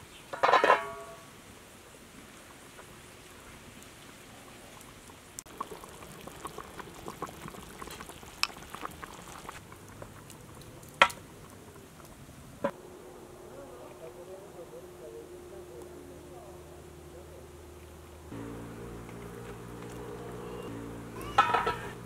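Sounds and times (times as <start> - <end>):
pot bubbling and popping: 4.6 - 12.8, 18.4 - 22.0.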